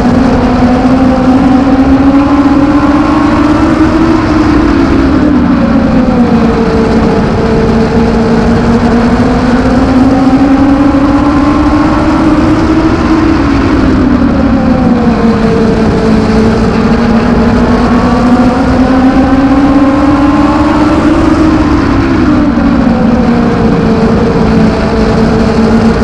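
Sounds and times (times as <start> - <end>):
race car engine revving: 0.0 - 26.0
road and wind noise: 0.0 - 26.0.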